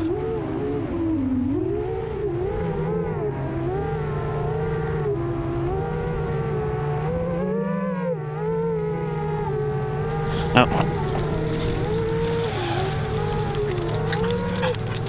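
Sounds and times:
quadcopter motors whining: 0:09.9 - 0:15.0.

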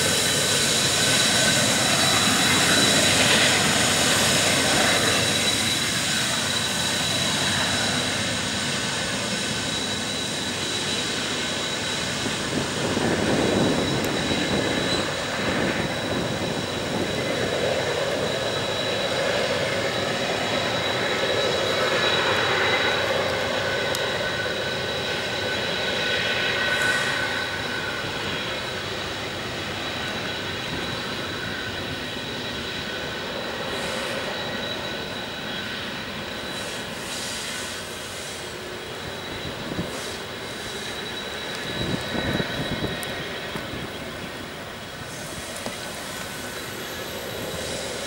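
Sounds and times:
diesel locomotives working hard: 0:00.0 - 0:48.0.

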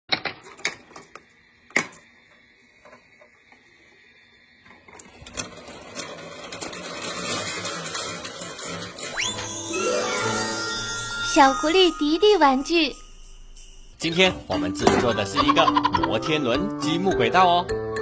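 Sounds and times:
marbles clicking on plastic track: 0:05.0 - 0:09.4.

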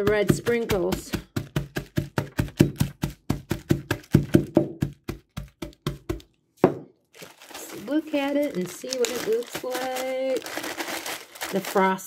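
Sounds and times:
mug knocking on countertop: 0:03.4 - 0:06.9.

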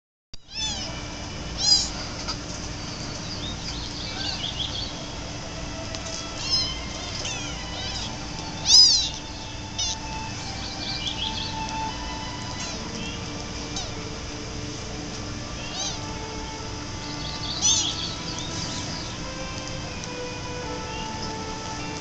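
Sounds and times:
faint steady hum: 0:00.4 - 0:22.0
kittens mewing: 0:00.5 - 0:01.0, 0:01.6 - 0:02.1, 0:06.3 - 0:14.1, 0:15.5 - 0:16.3, 0:17.1 - 0:19.4.

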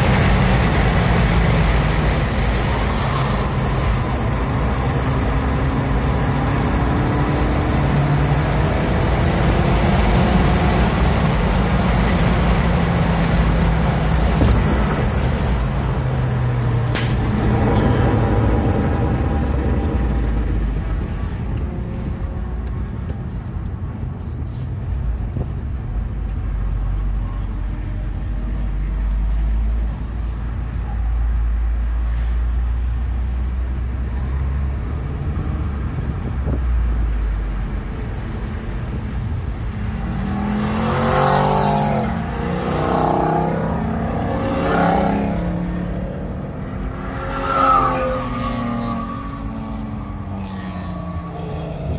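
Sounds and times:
car engine from inside cabin: 0:00.0 - 0:25.8
road noise: 0:00.0 - 0:51.9.

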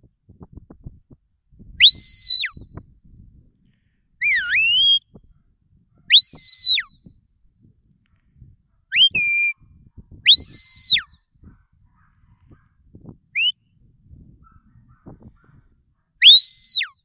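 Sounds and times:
high whistle commands: 0:01.8 - 0:02.7, 0:04.2 - 0:05.2, 0:06.1 - 0:06.9, 0:08.9 - 0:09.6, 0:10.3 - 0:11.1, 0:13.4 - 0:13.6, 0:16.2 - 0:17.0.

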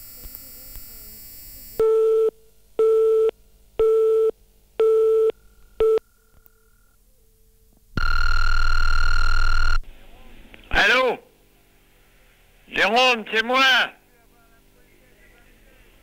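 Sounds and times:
long steady beep: 0:00.0 - 0:06.7, 0:08.0 - 0:09.8
telephone busy tone beeps: 0:00.0 - 0:07.0, 0:08.0 - 0:09.8.

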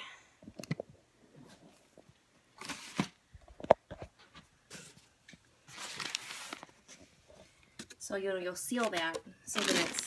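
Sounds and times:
newspaper rustling: 0:05.6 - 0:07.1, 0:08.7 - 0:10.0.

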